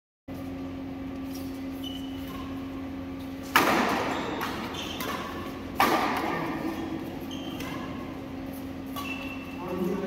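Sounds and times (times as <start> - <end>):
steady low hum: 0.3 - 10.0
badminton racket hitting shuttlecock: 3.4 - 9.6.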